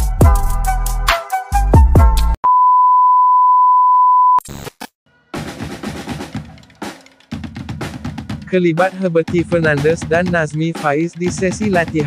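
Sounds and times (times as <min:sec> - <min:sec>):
drum-led music: 0:00.0 - 0:02.4, 0:05.3 - 0:12.0
test-tone beep: 0:02.5 - 0:04.4.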